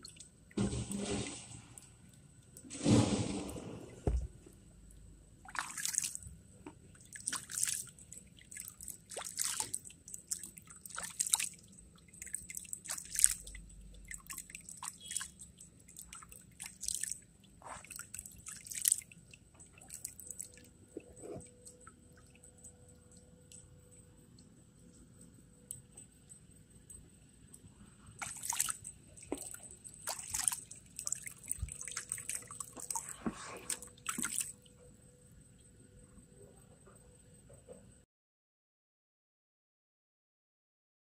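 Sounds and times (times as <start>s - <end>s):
water sloshing in plastic pan: 5.4s - 22.8s, 28.2s - 34.6s.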